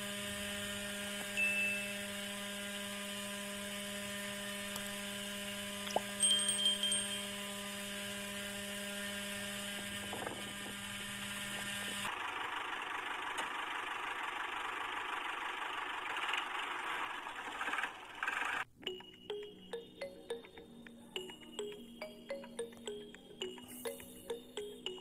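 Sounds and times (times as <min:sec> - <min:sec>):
small electric motor humming: 0:00.0 - 0:12.4.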